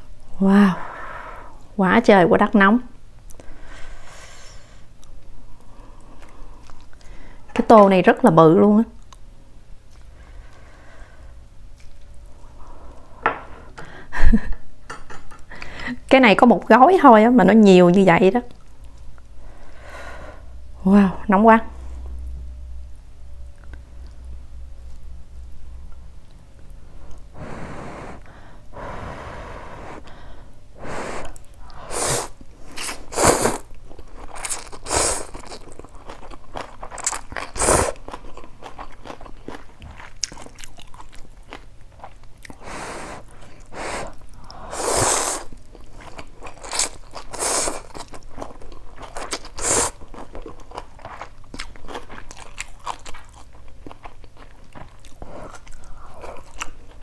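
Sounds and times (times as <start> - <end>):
chewing: 5.0 - 7.1, 33.6 - 44.6, 45.3 - 57.0
person slurping noodles: 30.8 - 33.7, 37.6 - 38.0, 42.6 - 45.5, 47.3 - 47.9.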